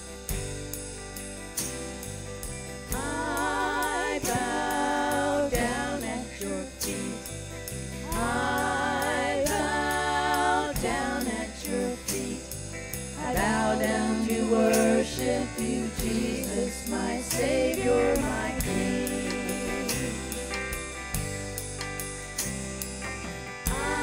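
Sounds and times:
worship band playing: 0.0s - 24.0s
voices singing long notes: 2.9s - 7.3s, 8.1s - 12.5s, 13.2s - 20.6s, 23.7s - 24.0s.

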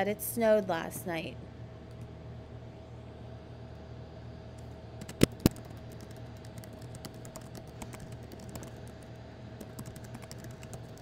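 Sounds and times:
keyboard key clicks: 5.0s - 8.7s.

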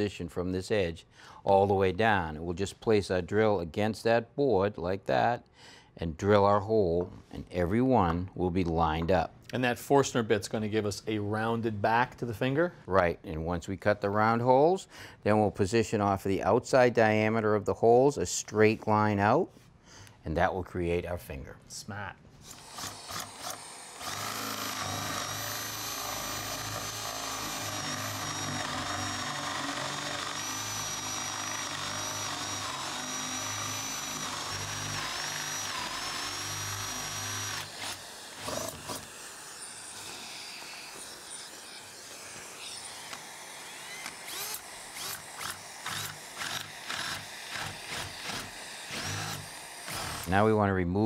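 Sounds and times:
cordless drill motor whining: 22.4s - 50.3s
drill boring through plywood: 22.4s - 50.4s.

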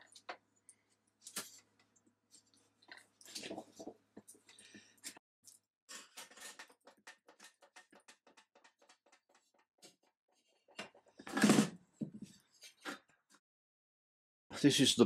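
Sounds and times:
small metallic clicks and scrapes: 4.3s - 11.2s.

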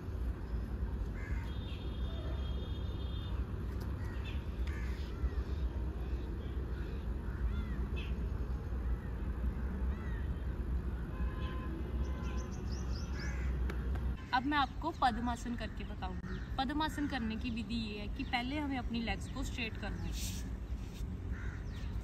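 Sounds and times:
crows and birds calling: 1.1s - 2.5s, 3.9s - 11.6s, 12.2s - 13.9s, 15.7s - 17.4s, 21.2s - 22.0s.

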